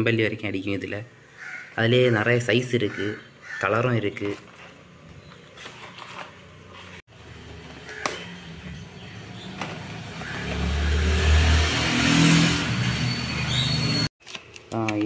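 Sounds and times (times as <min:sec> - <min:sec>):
vehicle engine passing: 0:08.3 - 0:14.1.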